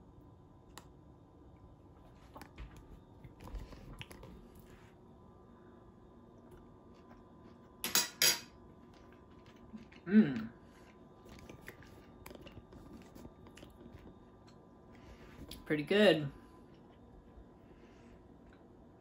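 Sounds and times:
man chewing food: 0.2 - 7.8, 8.5 - 15.6
man humming mmm: 10.0 - 10.6.

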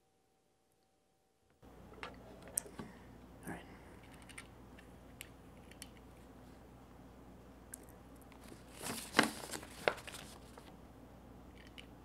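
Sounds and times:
paper rustling and crinkling: 8.4 - 10.7.

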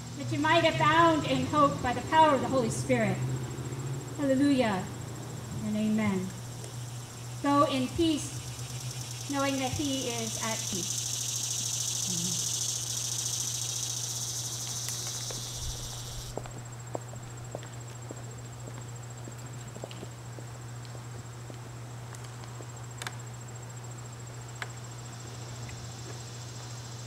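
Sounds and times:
cricket trill: 0.0 - 27.0
insects buzzing drone: 0.0 - 27.0
faint ticks: 9.3 - 16.6, 24.5 - 24.8.

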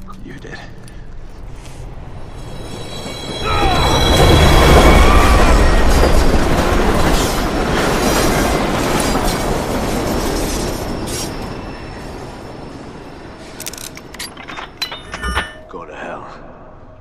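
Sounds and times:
subway train passing: 1.1 - 14.2.

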